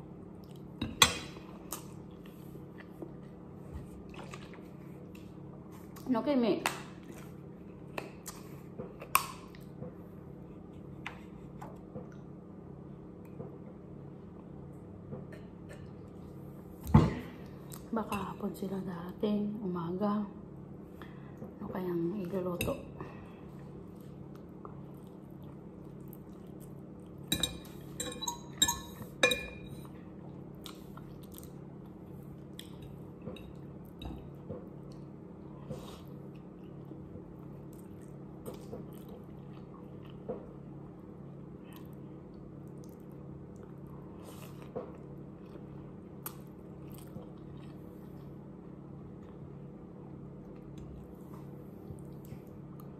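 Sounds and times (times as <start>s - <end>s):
steady low hum: 0.0s - 52.9s
fork clinking on ceramic plate: 27.3s - 29.7s
chewing noodles: 41.7s - 48.4s.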